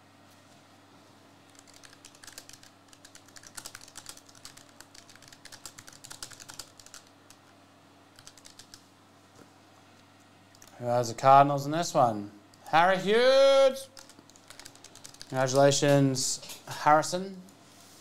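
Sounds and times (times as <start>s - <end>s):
computer keyboard typing: 1.5s - 7.4s, 8.2s - 8.8s, 10.5s - 10.7s, 14.0s - 15.8s.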